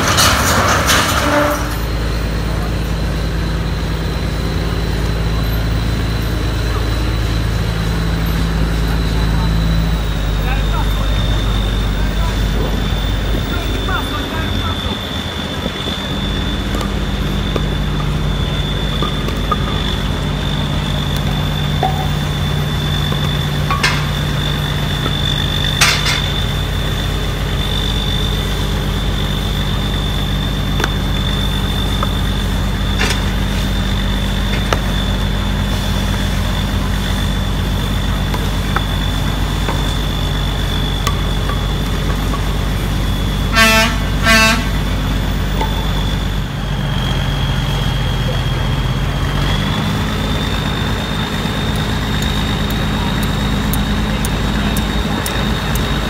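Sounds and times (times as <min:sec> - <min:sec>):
large engine humming and whining: 0:00.0 - 0:56.0
short horn toots: 0:43.5 - 0:44.8.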